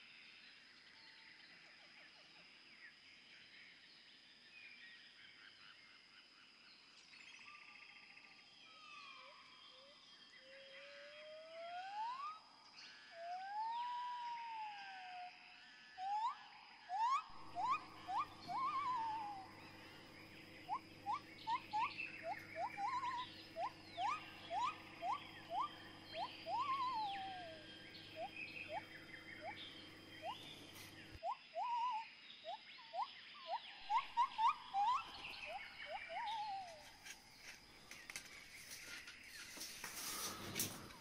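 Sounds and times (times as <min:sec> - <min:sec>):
low steady hum: 0:17.1 - 0:31.2, 0:33.6 - 0:41.0
short rising animal chirps: 0:20.7 - 0:27.6.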